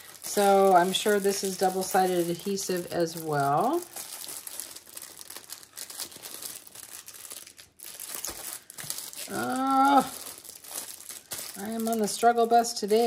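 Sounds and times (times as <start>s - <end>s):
plastic bag crinkling: 0.0s - 13.0s
person wordless vocal sound: 9.2s - 10.2s.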